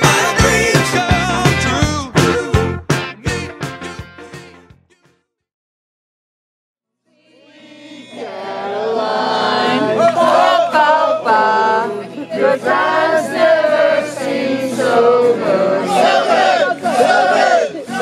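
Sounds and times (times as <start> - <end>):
voices singing together: 0.0 - 2.6, 7.1 - 18.0.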